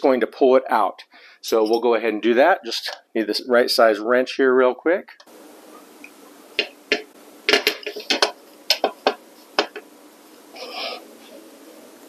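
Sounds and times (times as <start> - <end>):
metal scrape: 10.6 - 11.1.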